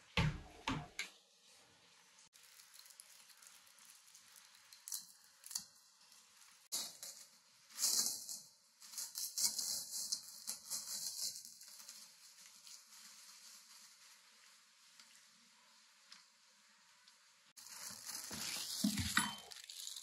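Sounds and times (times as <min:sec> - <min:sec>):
plastic wrap crinkling and tearing: 0:02.3 - 0:15.4, 0:17.6 - 0:20.0.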